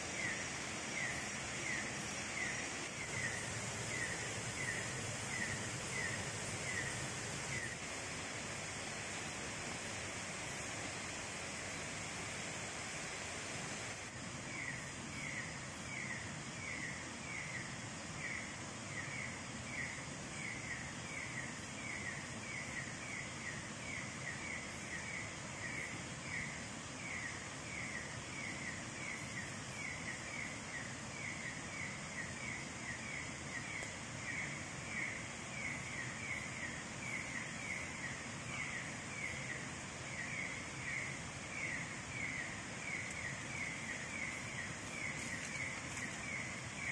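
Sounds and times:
steady hiss: 0:00.0 - 0:46.9.

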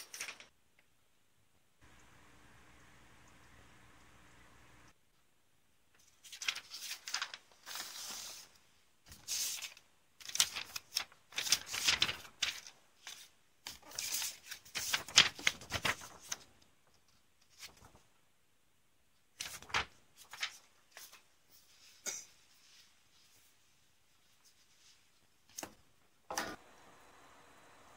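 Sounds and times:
paper rustling and crinkling: 0:00.0 - 0:00.5, 0:06.0 - 0:18.1, 0:19.4 - 0:23.6.

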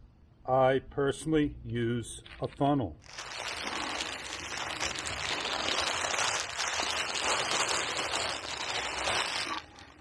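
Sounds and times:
plastic sheet crinkling: 0:03.0 - 0:10.0.

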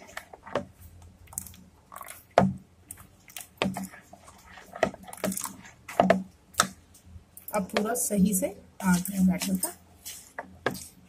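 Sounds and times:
batter squishing: 0:00.0 - 0:11.0
spoon scraping plastic bowl: 0:01.9 - 0:06.2, 0:08.8 - 0:11.0.

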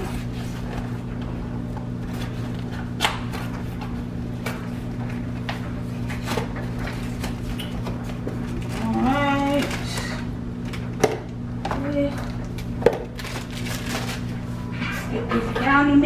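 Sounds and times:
steady low hum: 0:00.0 - 0:16.0
package rustling and clicking: 0:12.2 - 0:14.3.

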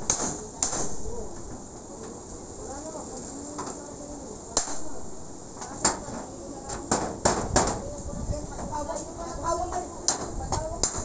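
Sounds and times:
claw bar prying metal roofing: 0:05.6 - 0:07.8, 0:09.7 - 0:11.0
sharp metal knocks: 0:06.8 - 0:07.8.

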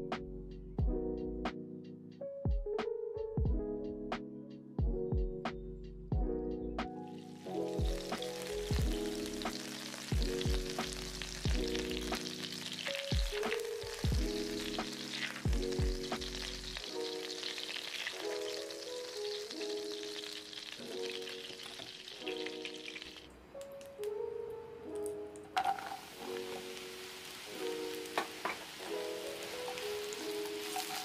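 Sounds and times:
background music with steady beat: 0:00.0 - 0:17.4
butter sizzling in frying pan: 0:07.2 - 0:23.3, 0:25.5 - 0:31.0
spatula stirring: 0:25.5 - 0:27.5, 0:28.1 - 0:31.0.

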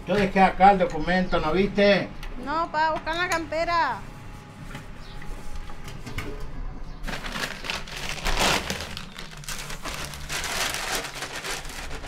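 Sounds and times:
clothing and objects rustling: 0:07.1 - 0:12.0.

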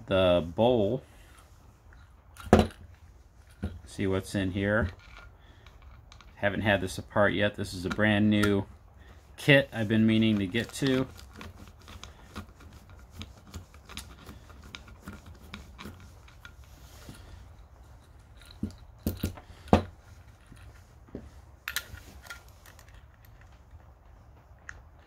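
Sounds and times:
light metal ticks and scrapes: 0:01.2 - 0:08.7, 0:09.4 - 0:25.0
screwdriver turning screws: 0:10.1 - 0:20.8.

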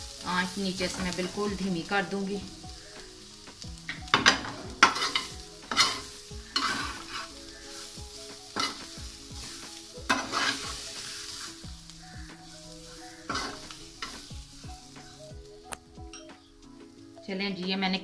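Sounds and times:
food sizzling gently: 0:00.0 - 0:18.0
metal spoon scraping a pan: 0:04.2 - 0:14.4.

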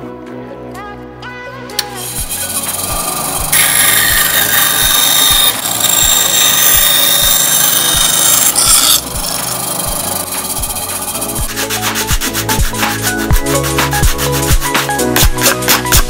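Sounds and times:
background music with beat: 0:00.0 - 0:03.6, 0:09.1 - 0:16.0
bandsaw cutting wood: 0:02.0 - 0:15.9.

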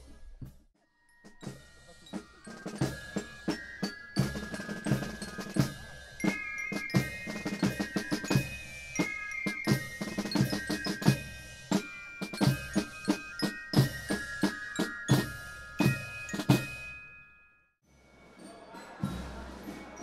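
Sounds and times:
snare and bass drums: 0:01.4 - 0:16.9
high melody line: 0:02.5 - 0:17.3.

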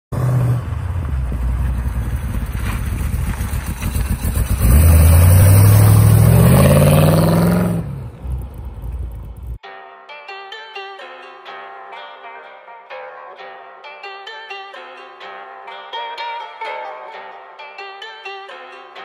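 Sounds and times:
car engine revving: 0:00.1 - 0:09.6.

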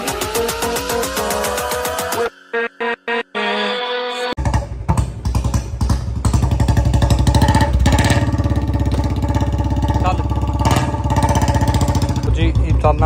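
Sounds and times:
motorcycle engine idling: 0:04.4 - 0:13.0.

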